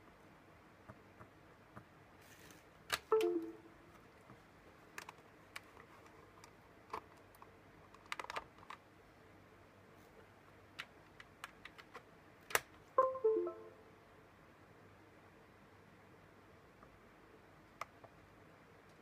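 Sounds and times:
two-note falling computer chime: 3.1s - 3.8s, 13.0s - 13.9s.

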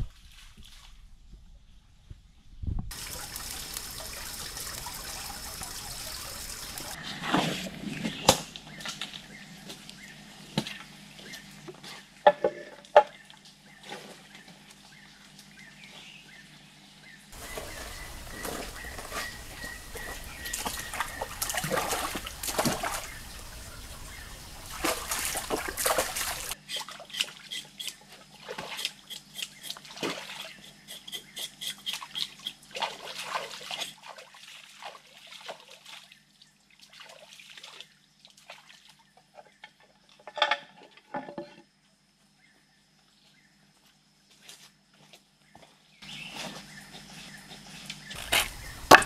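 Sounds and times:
water splashing and sloshing: 0.0s - 1.4s, 2.9s - 15.6s, 17.3s - 30.8s, 31.8s - 41.2s.

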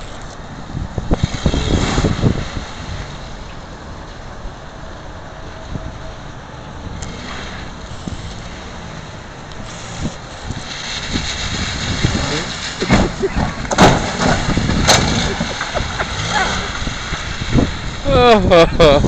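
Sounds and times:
wind on microphone: 0.0s - 3.4s, 9.6s - 19.0s
minivan driving on wet pavement: 0.0s - 19.0s.

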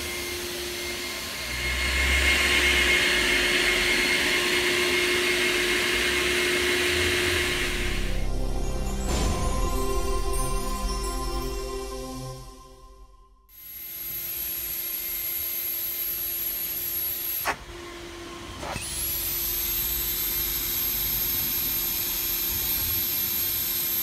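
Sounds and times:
rising whine: 0.0s - 13.8s
low machine hum: 7.2s - 13.5s.

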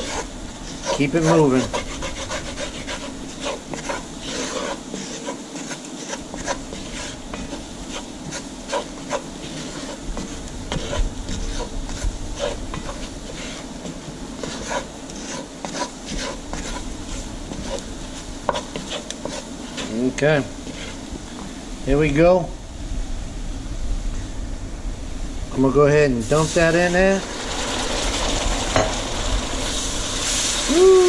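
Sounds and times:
spoon scraping pot bottom: 0.0s - 20.0s.

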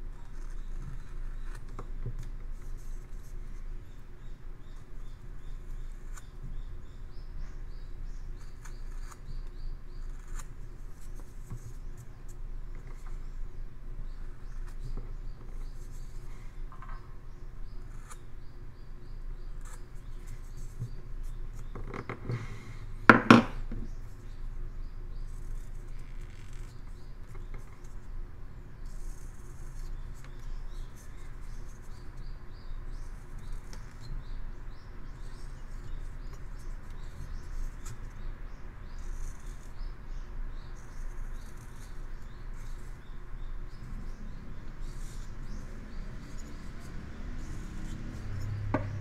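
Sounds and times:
knife cutting and scraping wood: 43.7s - 49.0s.

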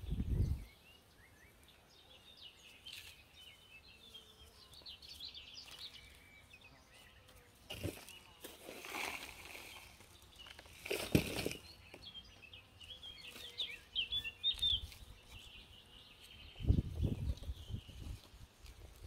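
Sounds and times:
songbird singing: 0.0s - 19.0s
hands scraping through soil: 7.7s - 11.8s.

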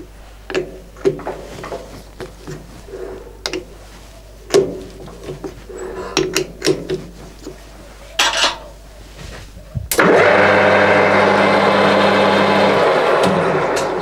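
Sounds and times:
lathe switching on: 9.9s - 14.0s
lathe spindle humming: 10.0s - 14.0s.

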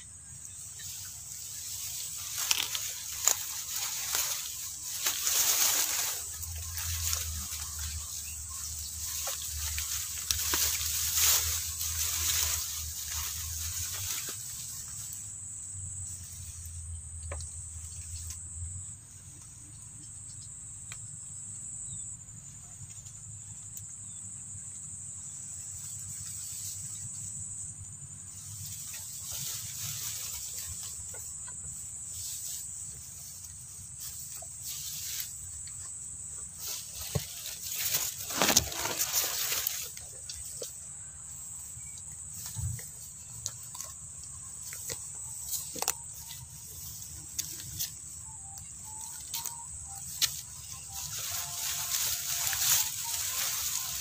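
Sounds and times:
insect trill: 0.0s - 54.0s
rustling noise: 0.5s - 15.4s, 28.2s - 54.0s.

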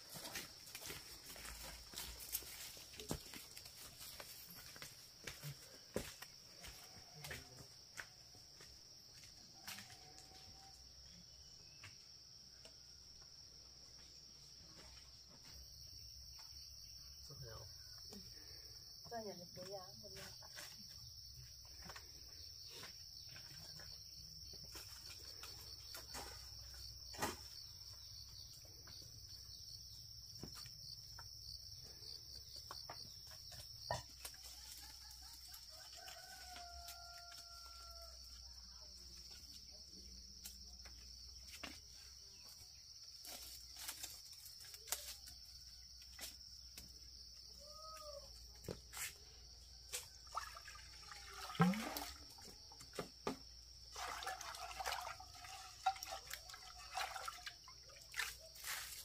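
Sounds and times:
rooster crowing: 34.4s - 38.5s.

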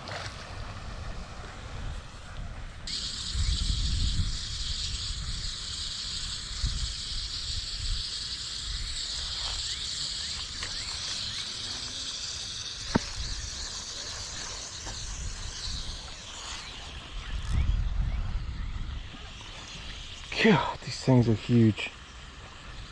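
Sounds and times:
wind buffeting microphone: 0.0s - 9.7s, 12.5s - 20.3s
steady high hiss: 0.0s - 22.9s.

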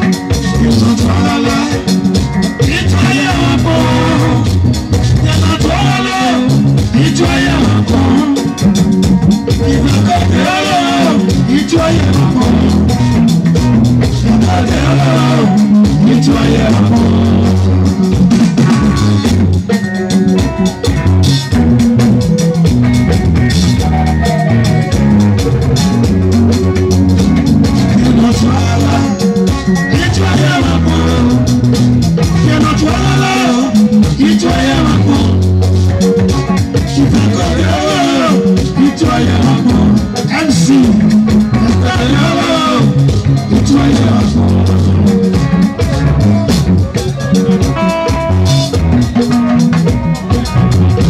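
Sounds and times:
man singing: 0.0s - 19.3s, 27.6s - 46.0s
bass line: 0.0s - 51.0s
drums keeping a steady beat: 0.0s - 51.0s
electric guitar: 0.0s - 51.0s.

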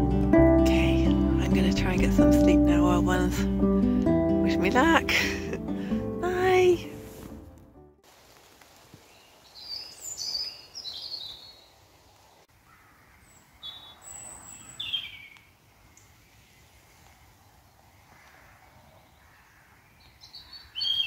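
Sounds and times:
faint steady hiss: 8.0s - 10.8s
songbirds chirping: 9.0s - 21.0s.

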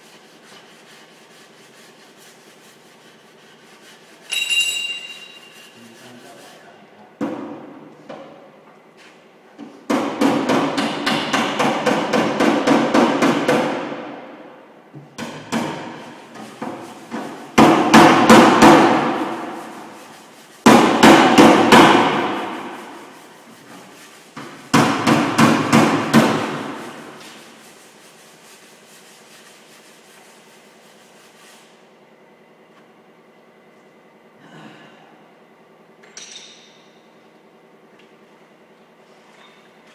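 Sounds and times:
hammer striking sheet steel: 9.9s - 14.0s, 15.2s - 19.9s, 20.6s - 23.2s, 24.4s - 27.2s.

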